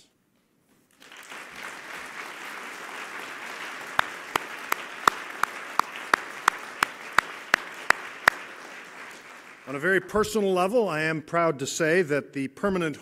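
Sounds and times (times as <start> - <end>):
audience applauding: 0.9 - 10.1
rhythmic hand clapping: 1.0 - 9.8.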